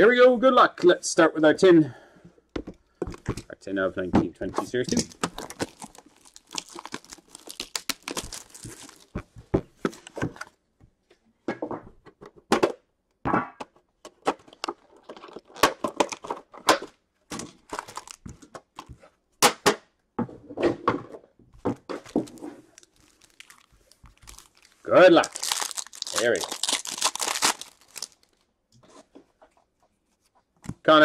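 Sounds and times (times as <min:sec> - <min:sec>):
plastic wrap crinkling and tearing: 0:04.9 - 0:09.3, 0:17.6 - 0:18.3, 0:22.0 - 0:28.5.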